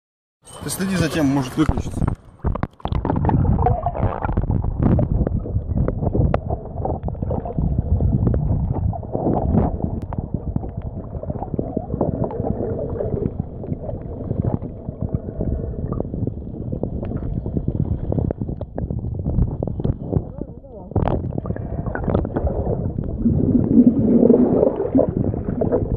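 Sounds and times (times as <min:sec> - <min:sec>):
underwater rumble of moving water: 0:01.3 - 0:25.9
small underwater clicks: 0:01.6 - 0:07.6, 0:18.1 - 0:22.4.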